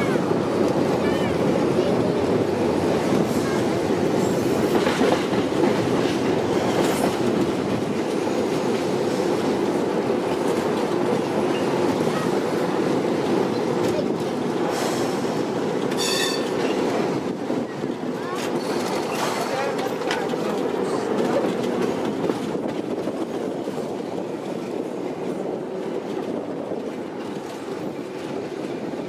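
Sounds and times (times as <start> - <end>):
tram wheels rumbling: 0.0 - 29.0
high squeal of tram wheels: 15.9 - 16.9.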